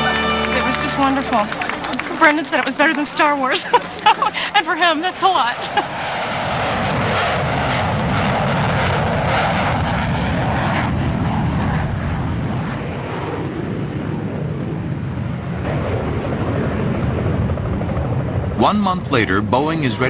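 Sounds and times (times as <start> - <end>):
jet engine rumble: 0.7 - 20.0.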